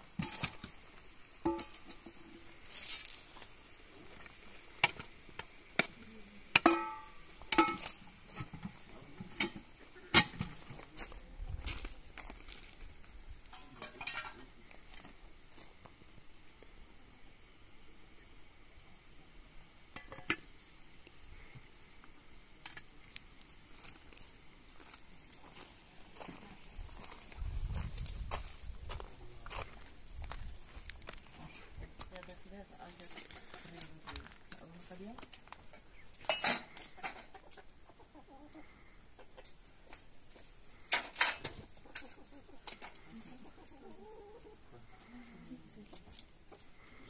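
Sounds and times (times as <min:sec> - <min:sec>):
faint background hiss: 0:00.0 - 0:47.0
chickens clucking: 0:35.7 - 0:40.1, 0:40.8 - 0:47.0.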